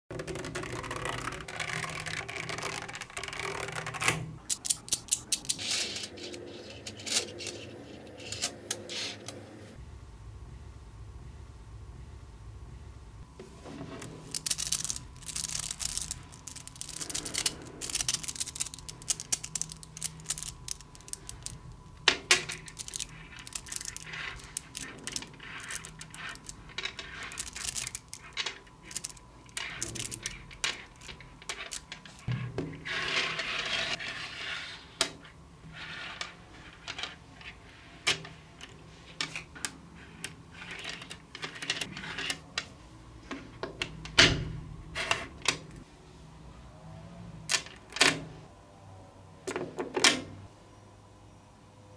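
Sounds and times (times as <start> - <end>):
magnetic balls clicking and rattling: 0.1 - 9.4, 13.8 - 32.7, 36.6 - 42.7.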